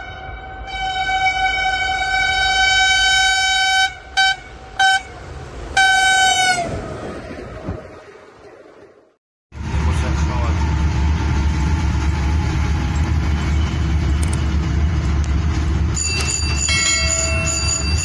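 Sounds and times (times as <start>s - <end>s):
locomotive air horn blasts: 0.0s - 5.2s, 5.8s - 6.7s
train rumble: 0.0s - 18.0s.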